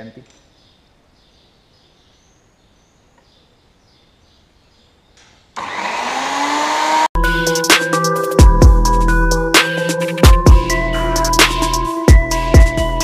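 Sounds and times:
grinding motor whining: 0:05.6 - 0:07.1
electronic music with heavy beat: 0:07.2 - 0:13.0.

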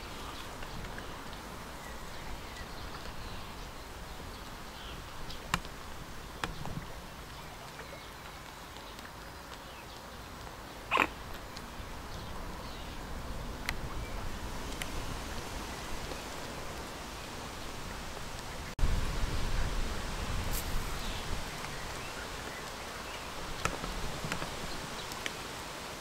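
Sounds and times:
steady hiss: 0:00.0 - 0:26.0
swans calling: 0:10.9 - 0:11.4.

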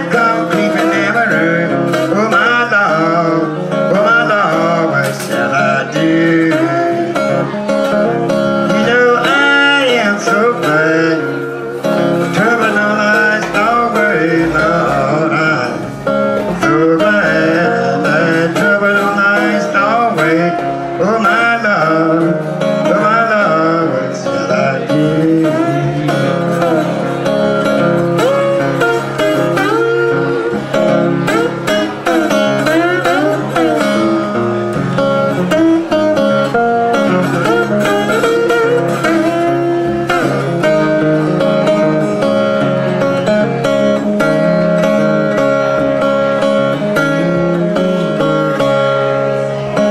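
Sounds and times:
fingerpicked acoustic guitar: 0:00.0 - 0:49.9
harmonica wailing: 0:25.2 - 0:49.9.

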